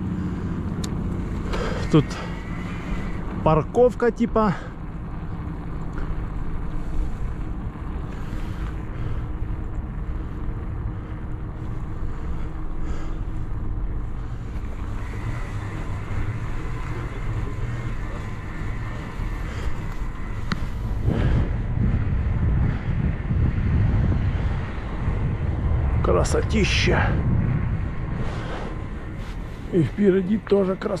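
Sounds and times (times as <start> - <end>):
faint high whine: 0.0 - 23.6
tyres rumbling on asphalt: 0.0 - 31.0
wind rushing over microphone: 0.0 - 31.0.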